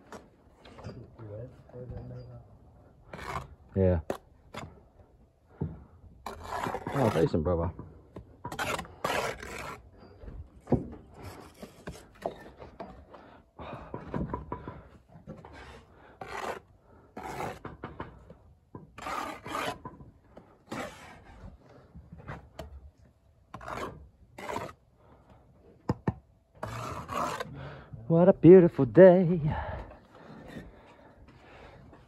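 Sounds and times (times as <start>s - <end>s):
brick jointer scraping mortar: 3.1s - 3.6s, 6.2s - 10.2s, 15.4s - 18.2s, 18.8s - 21.4s, 23.5s - 24.8s, 26.6s - 27.5s.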